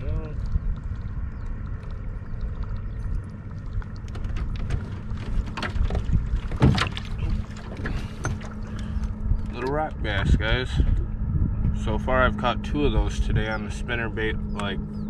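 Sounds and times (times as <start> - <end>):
faint steady hum: 0.0 - 15.0
water around a boat: 0.0 - 15.0
wind: 0.0 - 15.0.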